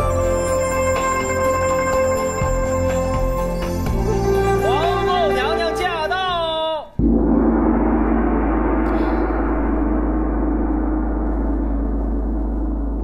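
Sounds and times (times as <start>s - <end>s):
large gong ringing: 7.0s - 13.0s.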